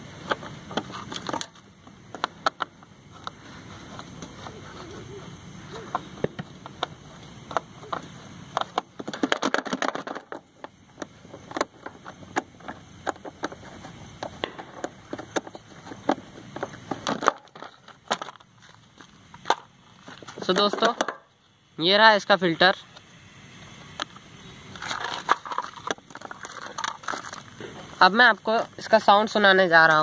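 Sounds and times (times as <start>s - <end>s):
crackling handling: 22.9s - 28.0s.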